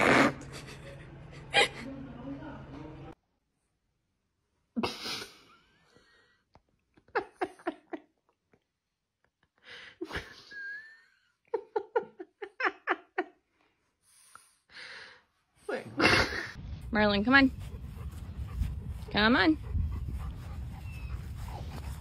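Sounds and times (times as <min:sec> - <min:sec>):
person laughing: 0:00.4 - 0:01.9.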